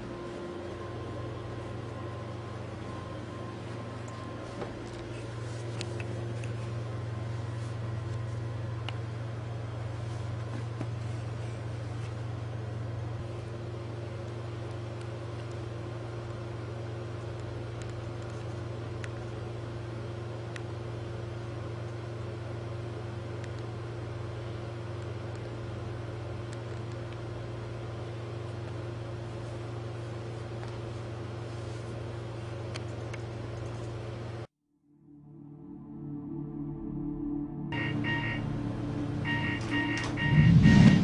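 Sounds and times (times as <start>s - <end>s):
steady low hum: 0.0s - 41.0s
higher steady tone: 34.7s - 41.0s.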